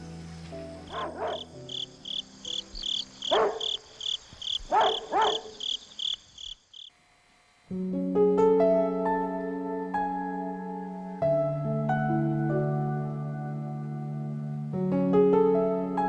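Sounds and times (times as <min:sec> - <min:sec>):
crickets chirping: 0:00.0 - 0:07.0.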